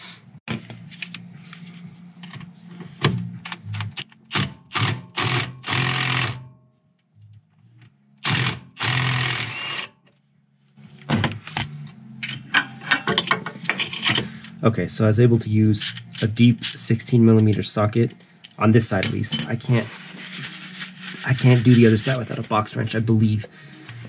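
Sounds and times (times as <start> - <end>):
impact wrench hammering: 3.4 - 6.4.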